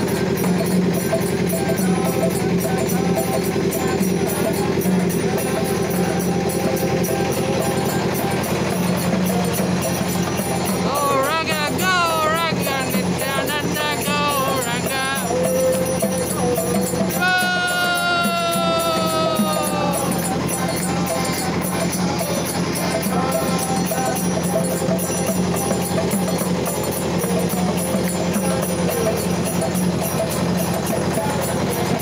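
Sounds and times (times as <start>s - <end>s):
drum: 0.0s - 32.0s
fast jingling beat: 0.0s - 32.0s
voices singing a chant: 0.0s - 32.0s
accordion: 9.0s - 24.1s
people clapping: 17.2s - 20.3s.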